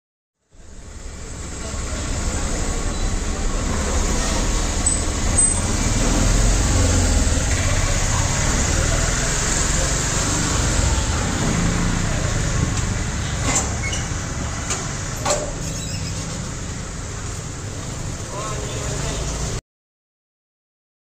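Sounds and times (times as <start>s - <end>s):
road traffic rumble: 0.4s - 19.6s
faint voices: 0.6s - 6.0s, 7.4s - 15.6s.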